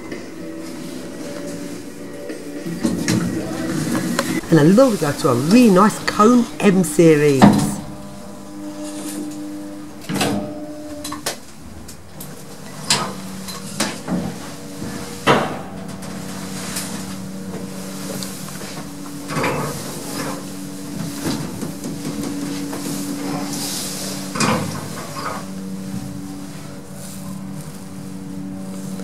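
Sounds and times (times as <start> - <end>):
lift motor hum: 0.0 - 29.0.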